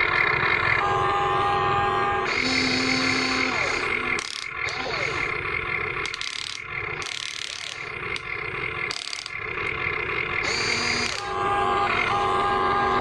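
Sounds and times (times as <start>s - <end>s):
electric motors whining: 0.7s - 13.0s
gear clicking: 3.4s - 11.3s.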